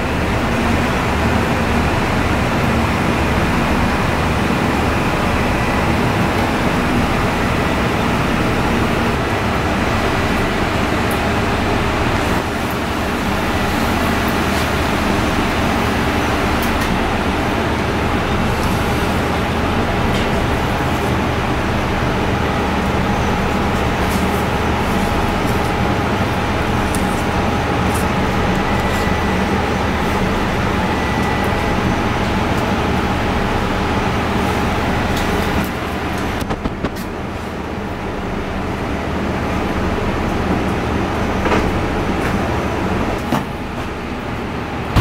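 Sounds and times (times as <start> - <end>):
mechanical hum and rumble: 0.0 - 45.0.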